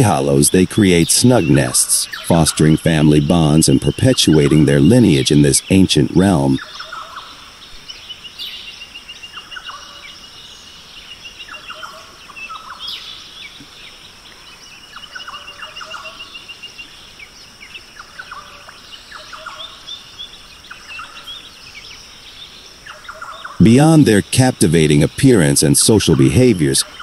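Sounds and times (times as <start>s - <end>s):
insect drone: 0.1s - 27.0s
bird trills: 3.2s - 23.6s.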